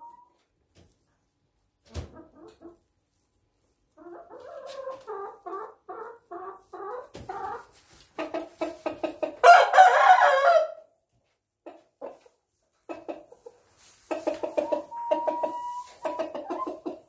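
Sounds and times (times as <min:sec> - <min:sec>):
rooster crowing: 0:09.4 - 0:10.8
rooster clucking: 0:12.9 - 0:17.0.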